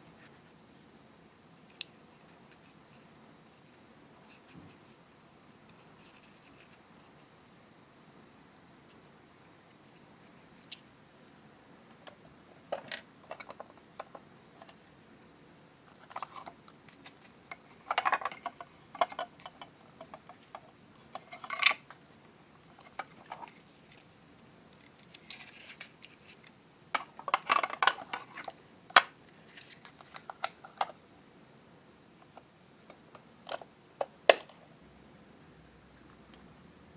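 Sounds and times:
plastic toy parts clicking: 0:27.0 - 0:29.1.

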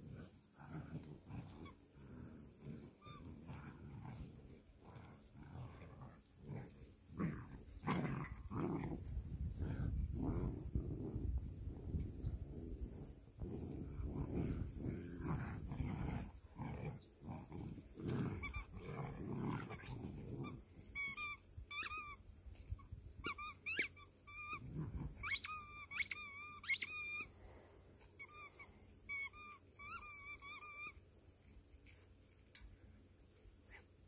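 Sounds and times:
puppies growling: 0:00.0 - 0:21.0, 0:24.4 - 0:25.9
short high-pitched squeaks: 0:23.2 - 0:24.6, 0:25.2 - 0:27.3, 0:28.2 - 0:31.0.

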